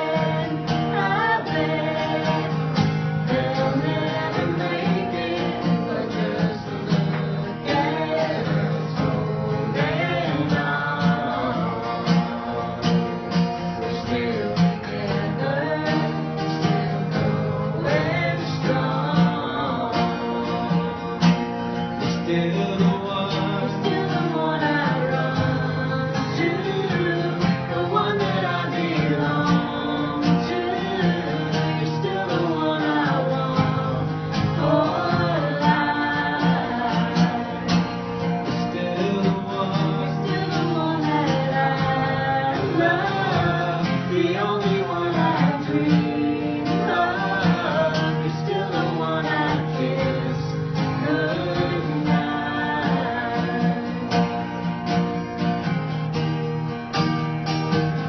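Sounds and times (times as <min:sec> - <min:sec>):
person singing: 0:00.0 - 0:20.7, 0:22.0 - 0:54.5
strummed guitar: 0:00.0 - 0:58.0.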